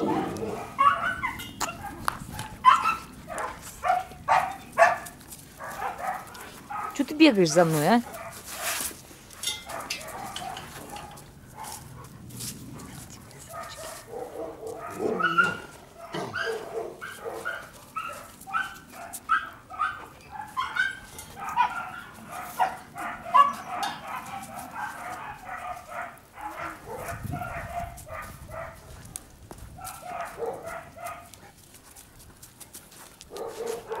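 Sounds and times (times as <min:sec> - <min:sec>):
puppies whining and yipping: 0:00.0 - 0:03.5, 0:14.8 - 0:25.4.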